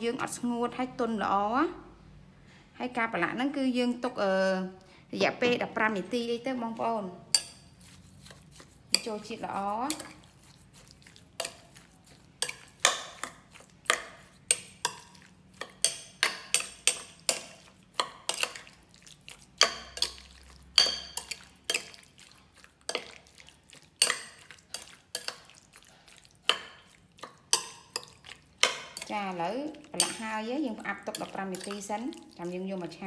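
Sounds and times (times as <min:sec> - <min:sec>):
spoon scraping glass bowl: 0:07.3 - 0:32.9.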